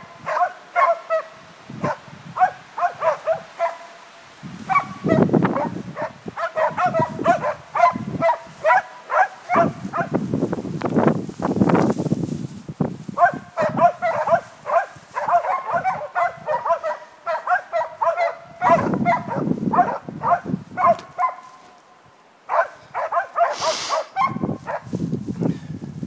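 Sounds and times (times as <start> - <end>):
dog barking rapidly: 0.0 - 4.0, 4.7 - 10.2, 13.2 - 21.6, 22.5 - 24.9.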